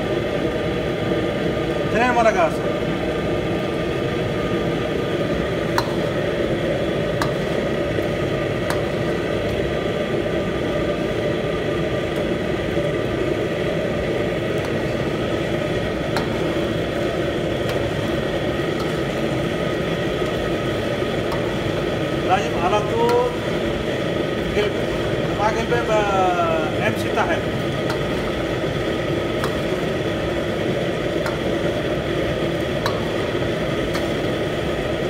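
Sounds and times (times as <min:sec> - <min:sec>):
kitchen equipment whirring: 0:02.3 - 0:35.0
ladle clicking on steel pan: 0:05.7 - 0:06.1, 0:07.2 - 0:07.5, 0:08.6 - 0:09.0, 0:27.8 - 0:28.3, 0:31.1 - 0:31.7, 0:32.8 - 0:34.3.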